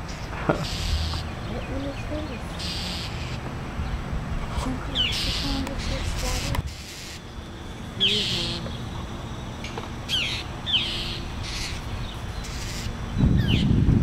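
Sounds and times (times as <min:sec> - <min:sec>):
mockingbirds harsh scolding calls: 0:00.0 - 0:13.9.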